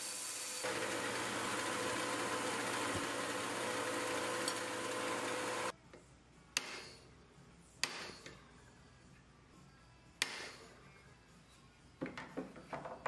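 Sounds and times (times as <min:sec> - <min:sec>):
belt grinder running: 0:00.0 - 0:05.7
hammer striking a chisel: 0:06.6 - 0:06.9, 0:07.8 - 0:08.3.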